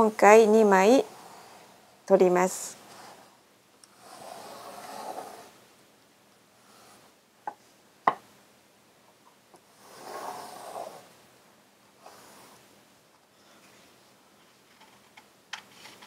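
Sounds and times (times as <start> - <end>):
pencil scratching on paper: 3.9 - 5.6, 9.8 - 11.1.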